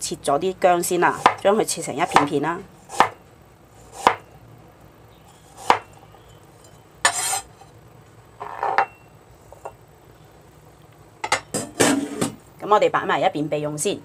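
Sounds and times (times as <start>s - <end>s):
cleaver chopping on cutting board: 1.2s - 1.4s, 2.9s - 3.2s, 4.0s - 4.2s, 5.6s - 5.9s
blade scraping cutting board: 5.3s - 5.9s, 7.0s - 7.7s.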